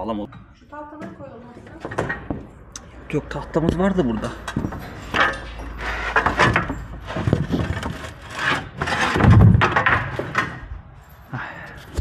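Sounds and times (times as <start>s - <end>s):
wooden boards knocking and scraping: 3.7s - 10.6s.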